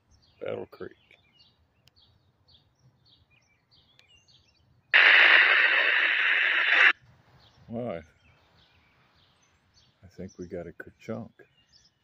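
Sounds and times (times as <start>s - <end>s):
radio speaker static hiss: 5.0s - 7.0s.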